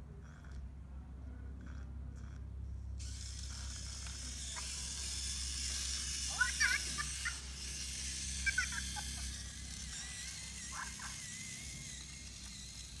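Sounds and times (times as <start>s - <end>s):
thin wavering whine: 3.0s - 13.0s
toy robot electronic chirps: 3.0s - 13.0s.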